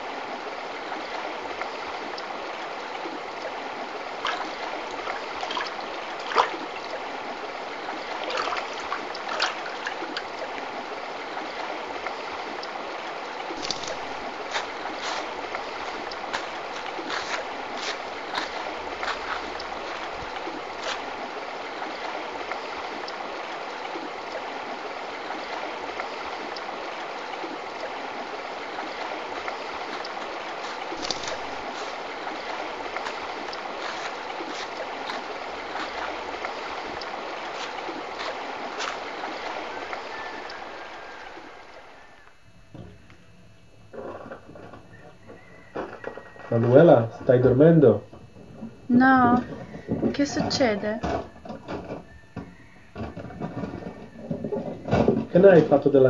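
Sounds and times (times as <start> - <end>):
river flowing over stones: 0.0 - 42.1.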